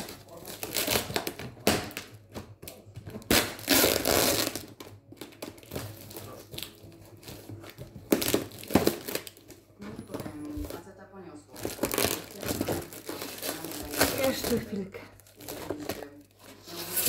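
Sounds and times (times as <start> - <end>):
tape ripping off cardboard: 0.0 - 2.1, 3.2 - 6.8, 8.1 - 9.6, 11.6 - 14.6, 15.4 - 17.0.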